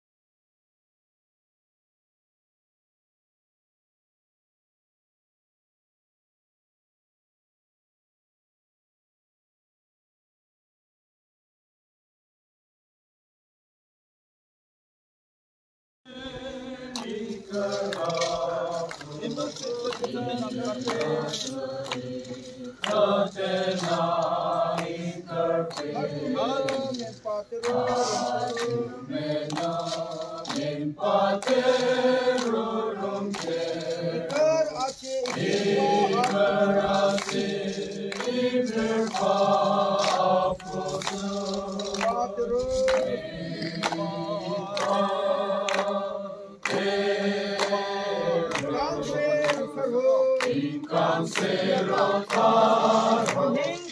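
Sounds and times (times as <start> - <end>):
congregation singing a hymn: 16.1 - 53.9.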